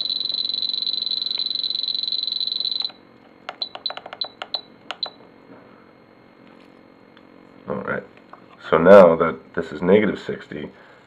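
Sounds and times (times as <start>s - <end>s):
steady high beep: 0.0s - 3.0s
button clicks: 2.8s - 5.2s.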